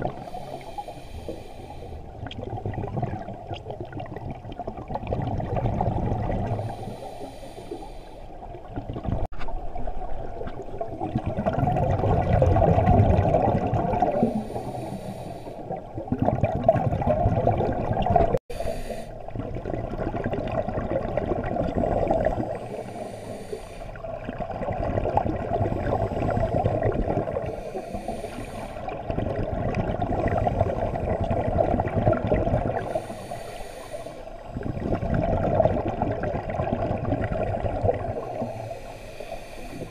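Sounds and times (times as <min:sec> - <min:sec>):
exhaled bubbles rushing: 0:00.0 - 0:00.3, 0:02.1 - 0:06.8, 0:08.4 - 0:14.6, 0:15.7 - 0:18.4, 0:19.2 - 0:22.8, 0:24.0 - 0:27.7, 0:28.8 - 0:33.1, 0:34.4 - 0:38.6
diver breathing through regulator: 0:00.1 - 0:02.2, 0:06.4 - 0:08.4, 0:14.0 - 0:15.9, 0:18.4 - 0:19.3, 0:22.4 - 0:24.1, 0:27.4 - 0:29.0, 0:32.7 - 0:34.6, 0:37.9 - 0:39.9.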